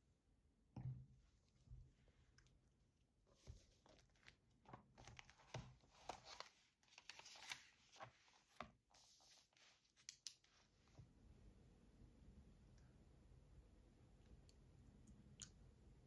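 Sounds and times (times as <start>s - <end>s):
notebook pages rustling: 3.4s - 11.0s.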